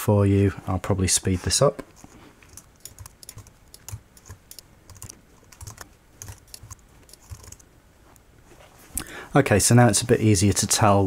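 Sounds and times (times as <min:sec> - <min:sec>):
computer keyboard typing: 0:02.0 - 0:07.7.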